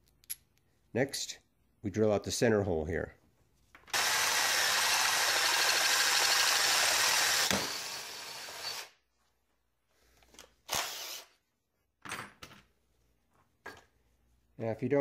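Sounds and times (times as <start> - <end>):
power drill drilling metal: 3.9 - 9.0, 10.7 - 11.3.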